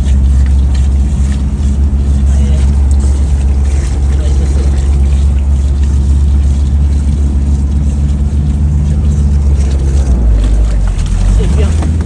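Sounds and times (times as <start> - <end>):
off-road vehicle engine droning: 0.0 - 12.0.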